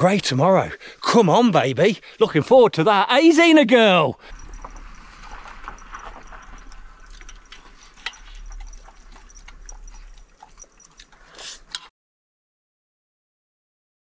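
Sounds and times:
dog eating from a bowl: 4.2 - 11.9
teeth clicking against bowl: 4.3 - 11.9.

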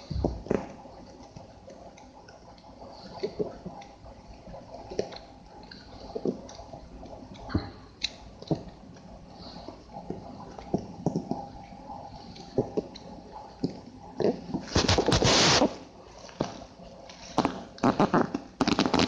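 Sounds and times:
book pages flipping: 14.6 - 16.6.

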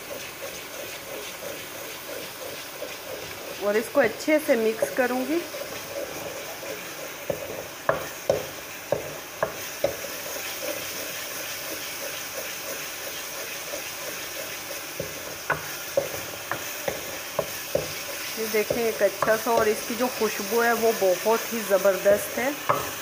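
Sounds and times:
frying sizzle: 0.0 - 23.0
wooden spoon scraping metal pot: 0.0 - 23.0.

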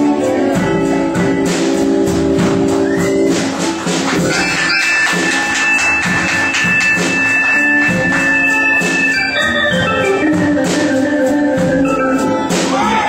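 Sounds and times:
blues band playing: 0.0 - 13.0
drum strikes: 0.7 - 13.0
organ sustained chords: 4.2 - 12.6.

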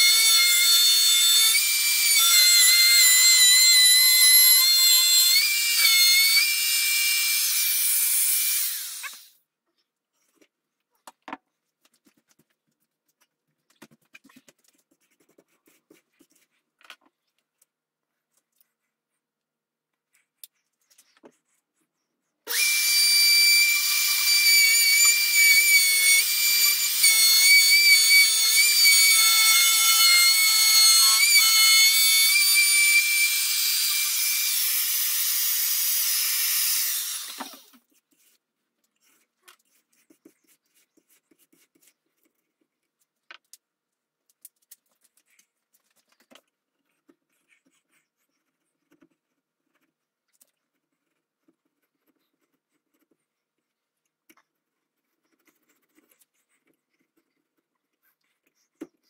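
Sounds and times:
faint clicks and scrapes: 9.4 - 22.4, 37.7 - 59.0
electric router whining: 22.5 - 37.7.

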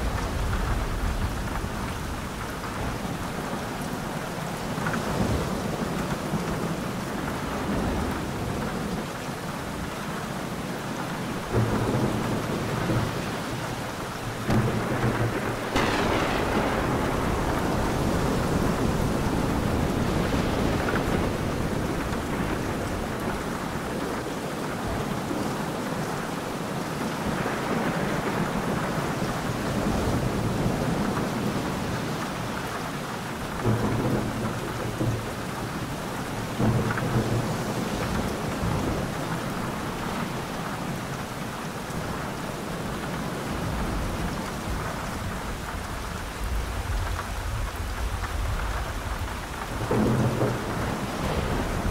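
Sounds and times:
thunder rumbling: 0.0 - 3.8, 11.2 - 26.0, 33.2 - 51.9
steady rain: 0.0 - 51.9
sharp thunderclap: 14.4 - 24.0, 33.4 - 40.9, 46.4 - 51.9.

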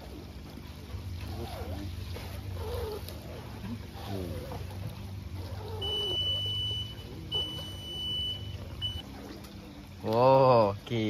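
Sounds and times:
low steady hum: 0.0 - 11.0
high-pitched beeps: 5.8 - 9.0.

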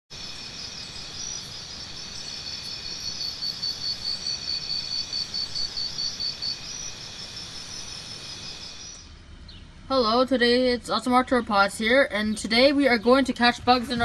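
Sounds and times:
insects trilling: 8.6 - 14.0
loud insect chirp: 8.6 - 14.0.

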